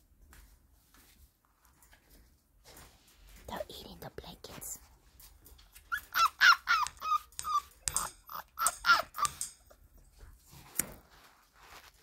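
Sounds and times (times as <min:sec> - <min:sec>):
puppy whining: 0:05.8 - 0:10.2.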